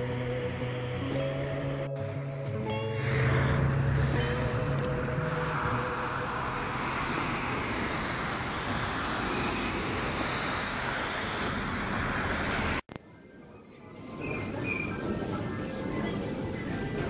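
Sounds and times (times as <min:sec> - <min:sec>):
cars driving past on snowy street: 0:02.2 - 0:12.9.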